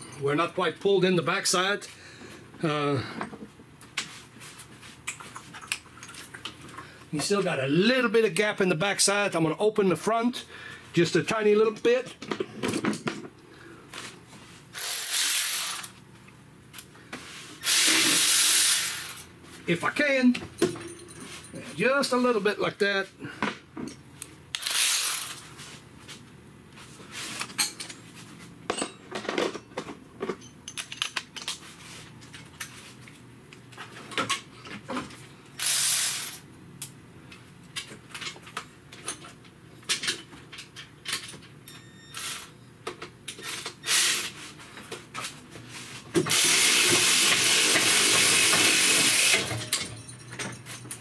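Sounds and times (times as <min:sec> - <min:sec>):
air hissing: 0:17.6 - 0:19.1
metal tools clinking: 0:20.5 - 0:21.8, 0:28.7 - 0:31.6, 0:49.2 - 0:51.0.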